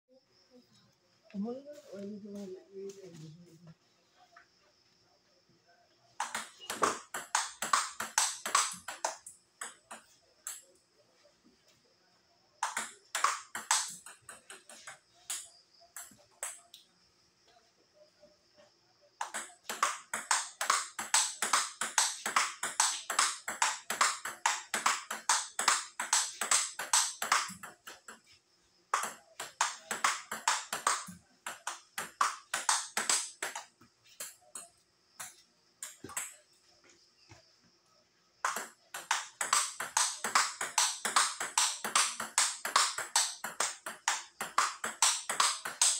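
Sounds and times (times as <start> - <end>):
table tennis ball hits: 6.2 - 10.6, 12.6 - 16.6, 19.2 - 28.2, 28.9 - 36.4, 38.4 - 45.9.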